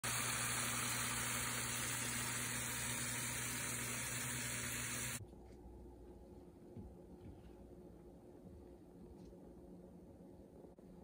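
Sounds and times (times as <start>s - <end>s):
chicken sizzling in a frying pan: 0.0s - 5.2s.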